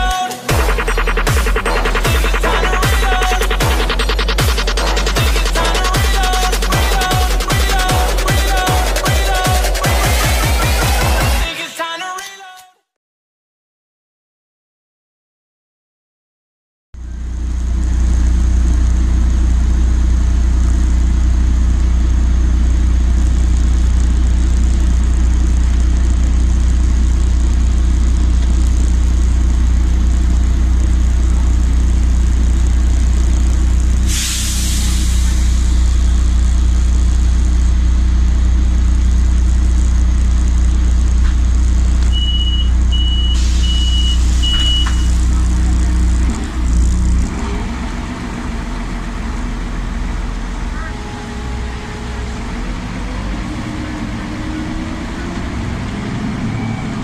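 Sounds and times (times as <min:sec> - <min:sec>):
bus engine idling: 0:00.0 - 0:11.5, 0:17.0 - 0:57.0
compressed air hiss: 0:34.0 - 0:35.8
short high beeps: 0:42.1 - 0:45.2.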